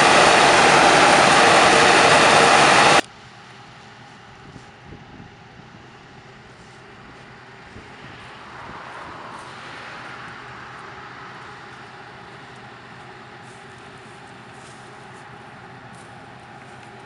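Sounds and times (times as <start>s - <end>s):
combine harvester droning: 0.0s - 17.0s.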